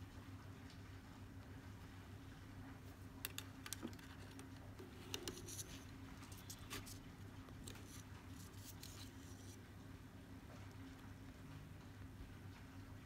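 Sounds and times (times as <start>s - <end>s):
fingers handling cord: 3.2s - 9.6s.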